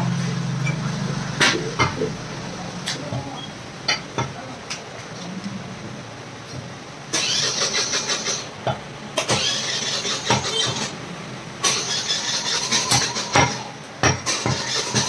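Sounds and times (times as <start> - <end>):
harsh machine noise: 0.0 - 4.0, 7.0 - 15.0.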